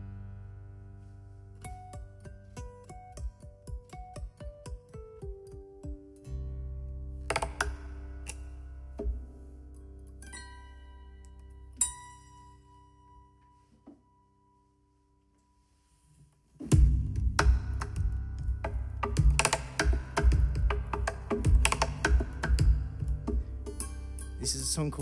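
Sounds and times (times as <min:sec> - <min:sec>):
percussive guitar strumming: 0:01.6 - 0:06.6, 0:16.7 - 0:25.0.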